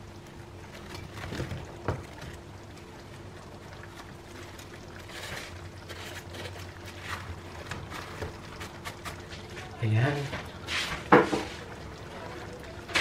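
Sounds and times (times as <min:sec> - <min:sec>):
knock: 0:11.1 - 0:11.5.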